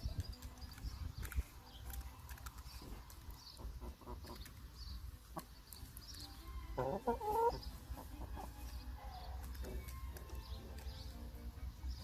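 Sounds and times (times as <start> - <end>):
chickens pecking: 0.0 - 12.0
chicken clucking: 3.5 - 4.6, 5.3 - 10.4.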